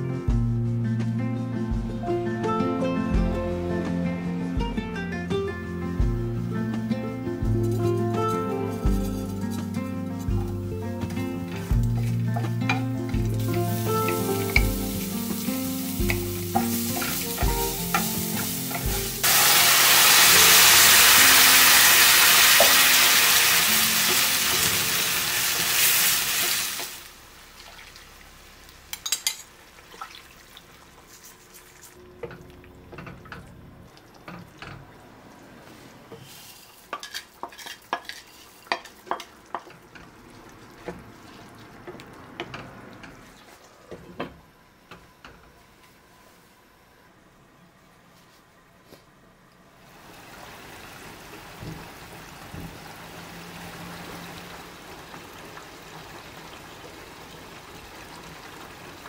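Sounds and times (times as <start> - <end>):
background music with steady beat: 0.0 - 19.3
food sizzling in oil: 11.5 - 30.0
wooden spatula scraping pan: 35.8 - 39.2.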